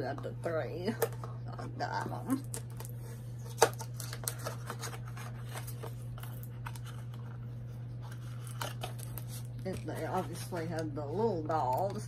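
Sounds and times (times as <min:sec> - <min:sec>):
steady low hum: 0:00.0 - 0:12.0
packaging clicks and rustles: 0:02.3 - 0:07.4, 0:08.0 - 0:10.4.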